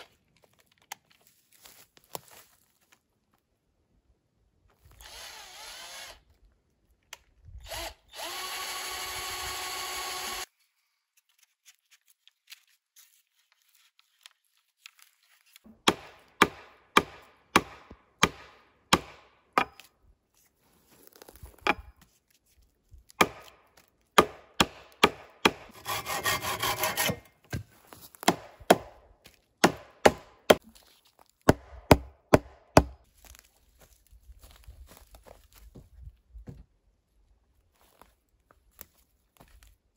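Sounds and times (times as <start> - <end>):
cordless drill running: 4.9 - 6.2, 7.6 - 10.5
hatchet striking wood: 15.7 - 19.9, 21.6 - 21.9, 23.2 - 30.6, 31.5 - 33.1.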